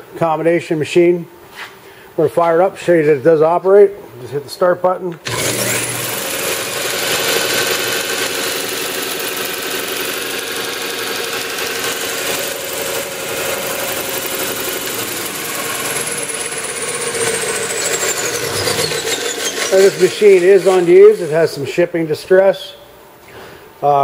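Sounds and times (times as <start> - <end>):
sander motor humming with whine: 5.2 - 21.6.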